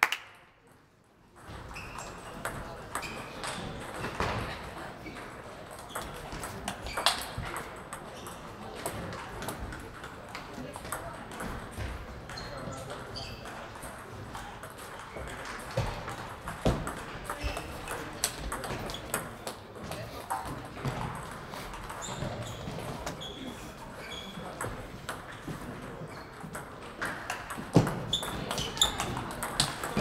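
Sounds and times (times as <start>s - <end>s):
table tennis balls clicking: 26.2s - 30.0s.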